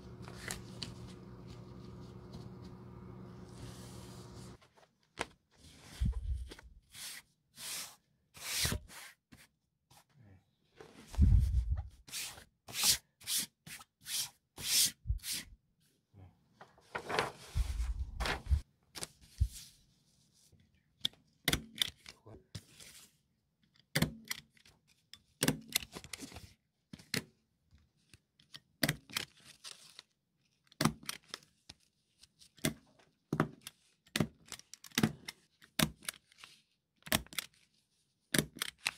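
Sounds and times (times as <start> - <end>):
paper crinkling and rustling: 0.0 - 6.7, 16.7 - 19.7, 28.0 - 38.9.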